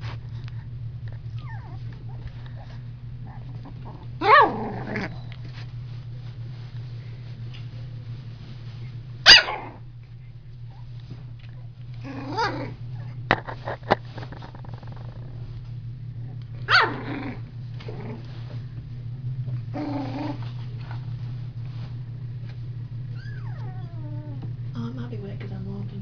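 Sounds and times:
puppies growling: 0.0 - 5.6, 10.9 - 15.6, 16.3 - 18.6, 19.4 - 21.2, 23.1 - 24.5
steady low hum: 0.0 - 26.0.

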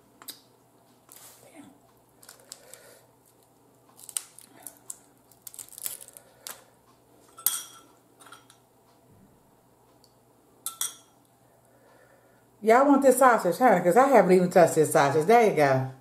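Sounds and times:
crab shells cracking: 2.2 - 6.7.

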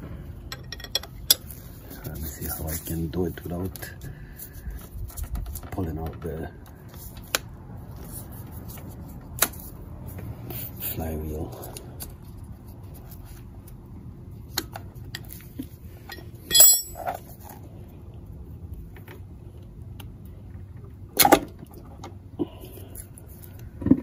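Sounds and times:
metal parts clinking: 0.5 - 1.4, 16.1 - 17.2.

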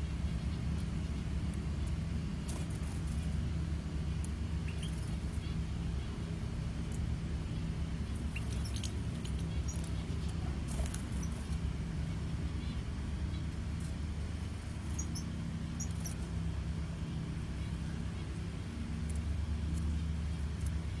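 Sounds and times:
low mechanical hum: 0.0 - 21.0
faint high bird chirps: 4.6 - 6.2, 8.0 - 13.5, 14.8 - 16.3.

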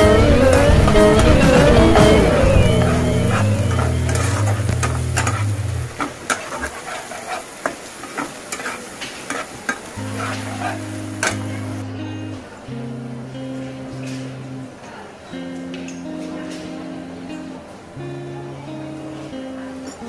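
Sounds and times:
background music: 0.0 - 6.0
spatula scraping a pan: 3.8 - 11.5
onions sizzling in oil: 3.9 - 11.8.

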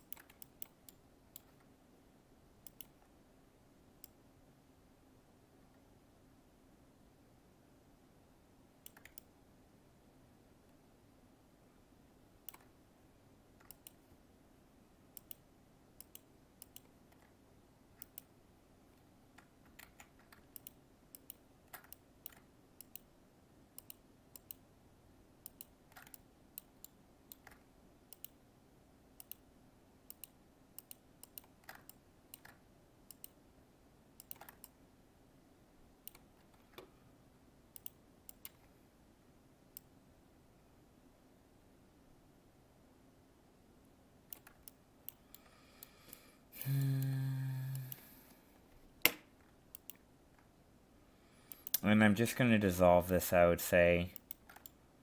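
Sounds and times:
faint mouse clicks: 0.0 - 1.7, 2.6 - 3.1, 4.0 - 4.2, 8.8 - 9.4, 12.4 - 12.8, 13.6 - 14.2, 15.1 - 17.4, 18.0 - 23.1, 23.7 - 24.7, 25.4 - 28.4, 29.2 - 29.4, 30.1 - 33.4, 34.2 - 34.8, 36.0 - 37.0, 37.7 - 38.8, 39.7 - 40.0, 44.3 - 50.5, 51.4 - 51.9, 54.1 - 54.8
low steady hum: 0.0 - 55.0.

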